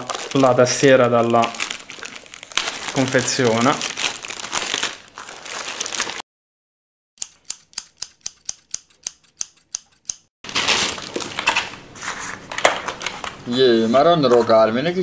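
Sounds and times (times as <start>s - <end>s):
plastic wrapping crinkling: 0.0s - 6.2s, 10.5s - 11.8s
scissors snipping: 7.2s - 10.3s.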